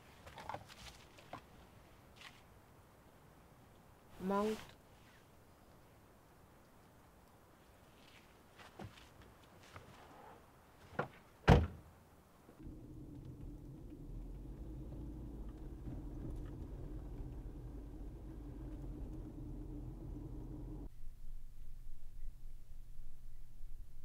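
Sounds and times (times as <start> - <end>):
vehicle driving hum from inside: 12.6 - 20.9.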